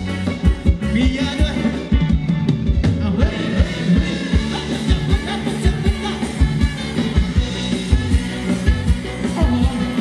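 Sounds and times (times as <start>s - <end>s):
person singing: 3.0s - 7.2s, 8.5s - 10.0s.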